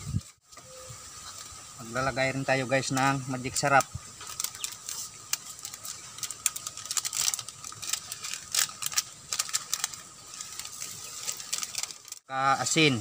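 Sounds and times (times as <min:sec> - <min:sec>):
plastic sachet crinkling: 0:03.5 - 0:12.3.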